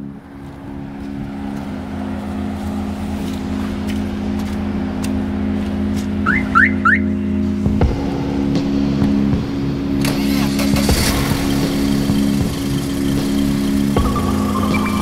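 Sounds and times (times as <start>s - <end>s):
steady low drone: 0.0s - 15.0s
car alarm chirps: 6.2s - 7.2s, 12.5s - 15.0s.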